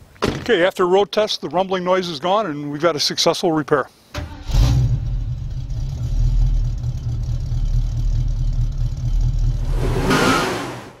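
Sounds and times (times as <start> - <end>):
rushing burst: 9.6 - 11.0.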